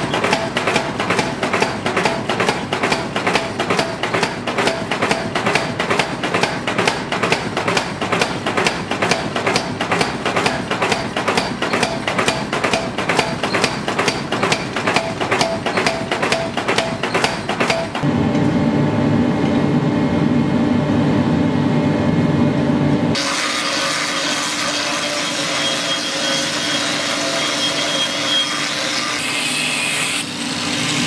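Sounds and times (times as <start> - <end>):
power hammer striking steel: 0.0 - 18.1.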